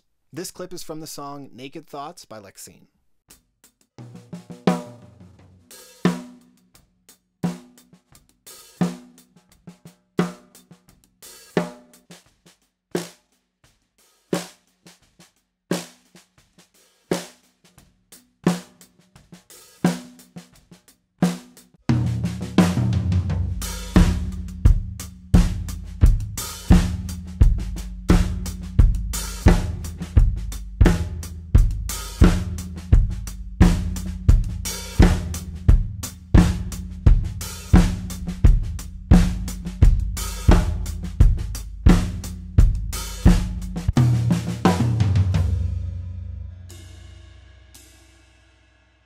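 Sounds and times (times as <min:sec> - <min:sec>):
full drum kit: 0:03.3 - 0:49.0
snare drum ghost notes: 0:21.9 - 0:45.8.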